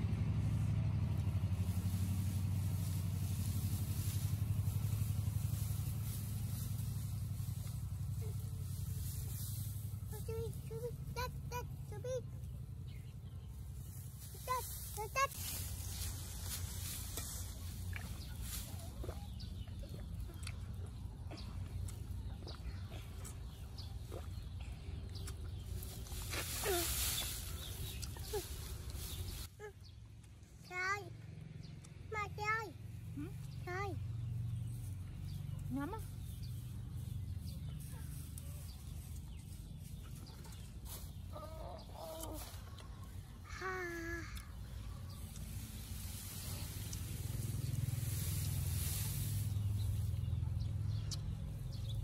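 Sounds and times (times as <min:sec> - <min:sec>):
steady low rumble: 0:00.0 - 0:29.5
small birds chirping: 0:00.8 - 0:52.0
chickens clucking: 0:37.3 - 0:43.4.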